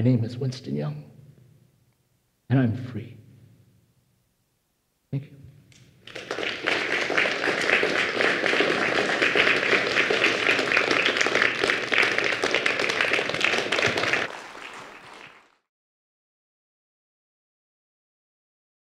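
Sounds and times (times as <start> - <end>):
audience applauding: 6.0 - 15.7.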